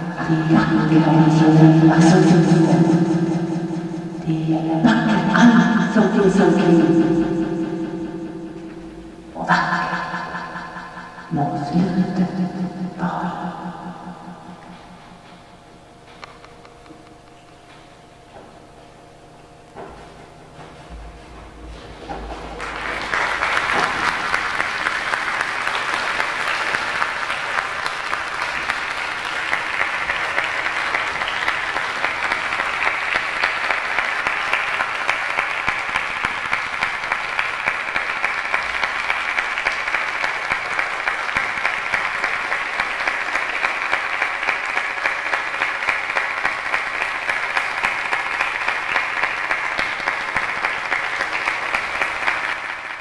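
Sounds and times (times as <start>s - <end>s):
audience clapping in unison: 2.0s - 4.3s, 7.1s - 11.3s, 12.4s - 15.6s, 21.8s - 53.0s.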